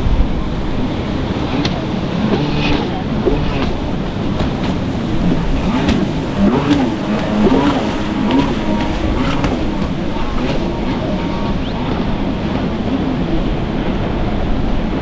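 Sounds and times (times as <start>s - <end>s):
jet ski engine revving: 0.0s - 15.0s.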